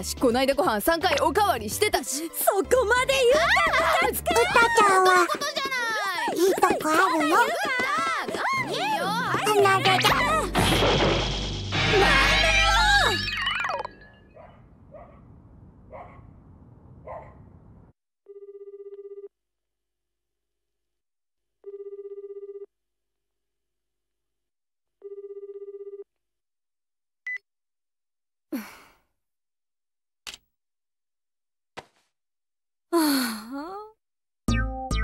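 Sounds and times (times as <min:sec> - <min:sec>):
telephone ringing tone: 0:18.3 - 0:19.3, 0:21.6 - 0:22.7, 0:25.0 - 0:26.1
person sighing: 0:28.5 - 0:29.0, 0:32.9 - 0:33.9.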